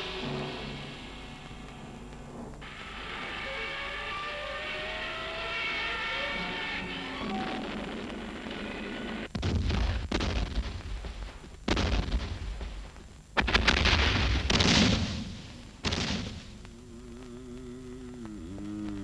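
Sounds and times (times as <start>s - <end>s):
explosion blasts with rumble: 7.4s - 12.8s.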